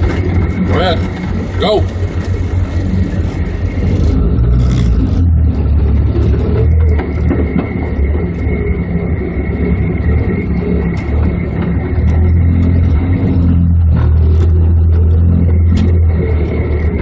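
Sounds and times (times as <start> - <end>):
truck engine running low: 0.0 - 17.0.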